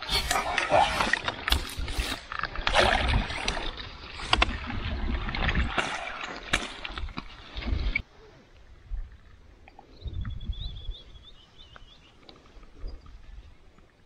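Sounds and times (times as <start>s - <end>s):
water splashing and sloshing: 0.0s - 9.9s.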